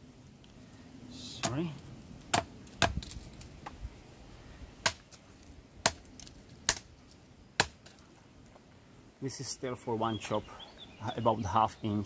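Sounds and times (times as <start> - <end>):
knife chopping into wood: 2.3 - 3.1, 4.8 - 5.1, 5.8 - 6.0, 7.6 - 7.9.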